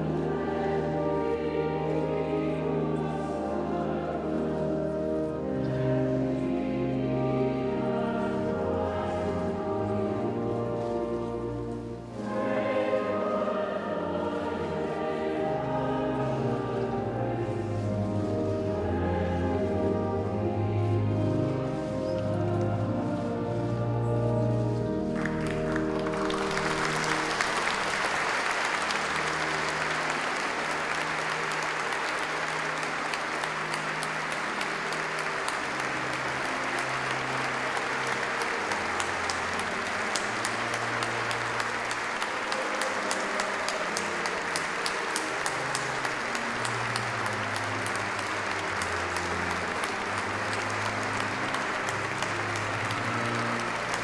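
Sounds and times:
music with sustained low notes: 0.0 - 54.0
congregation applauding: 25.0 - 54.0.

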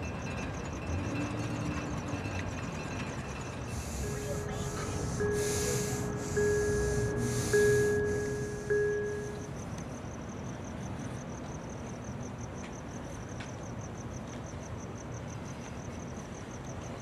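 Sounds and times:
cricket chirping: 0.0 - 17.0
ringing tone struck: 3.6 - 9.5.

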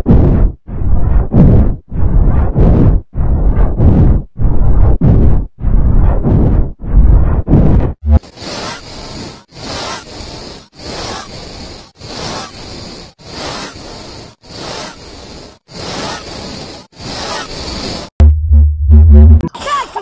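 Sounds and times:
loud low hum: 0.0 - 8.3, 18.2 - 19.5.

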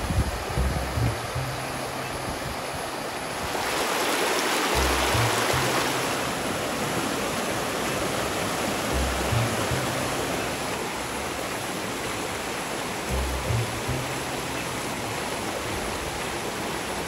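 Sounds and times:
stream rushing over stones: 0.0 - 17.0
background music: 0.2 - 2.6, 4.7 - 6.6, 8.8 - 10.7, 13.0 - 15.3.

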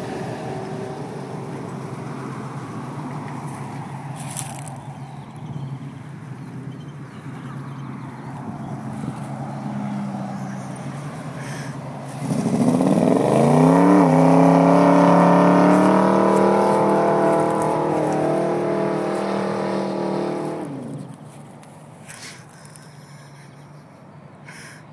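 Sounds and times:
car engine revving hard: 9.6 - 21.2.

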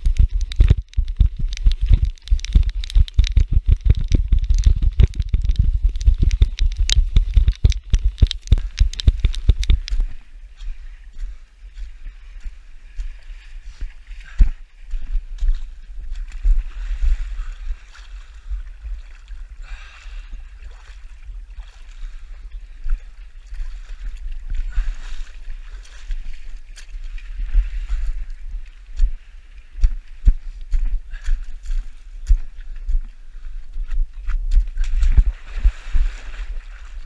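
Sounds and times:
low rumble of camera handling: 0.0 - 10.0
muddy water sloshing and splashing: 0.0 - 37.0.

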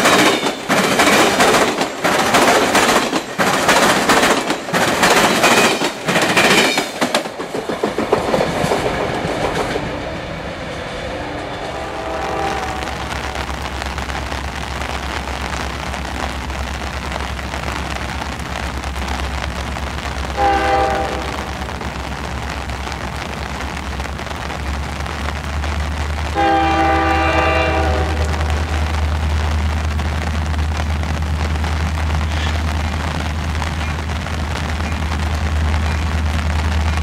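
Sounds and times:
heavy rain hissing: 0.0 - 37.0
locomotive horn blasts: 11.2 - 13.5, 20.3 - 21.6, 26.3 - 28.8.

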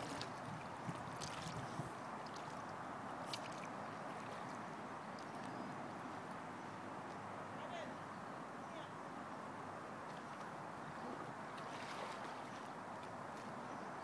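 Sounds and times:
water lapping against kayak hull: 0.0 - 5.6, 11.0 - 12.8.

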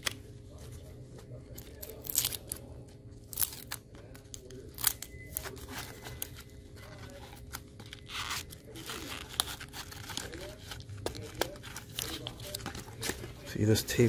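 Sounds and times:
gloves rustling: 5.4 - 14.0.

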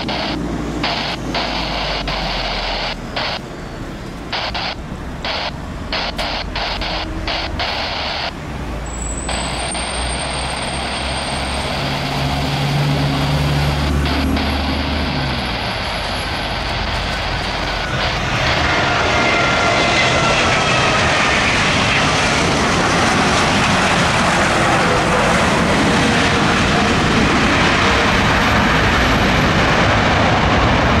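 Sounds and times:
falling engine whine: 0.0 - 31.0
jet engines roaring: 0.0 - 31.0.

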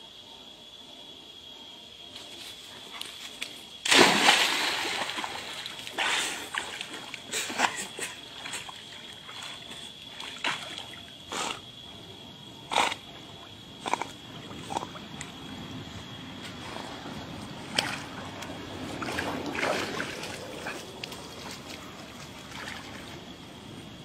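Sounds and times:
water sloshing and splashing: 3.4 - 11.3, 13.2 - 23.6.

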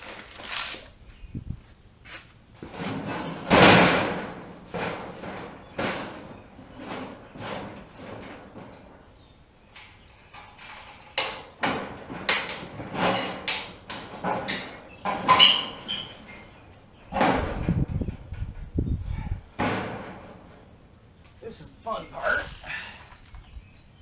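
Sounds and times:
steel clanking and knocking: 2.6 - 20.6
deep metal rumble: 11.8 - 21.0.

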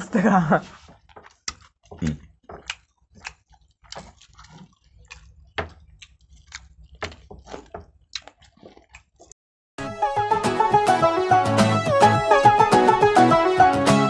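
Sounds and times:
wet chewing and lip smacks: 0.8 - 9.4.

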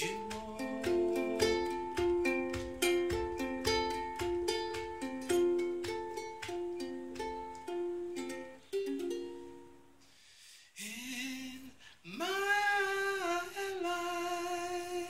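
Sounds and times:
man singing: 0.0 - 4.3, 10.8 - 15.0
ukulele notes ringing: 0.0 - 10.0.

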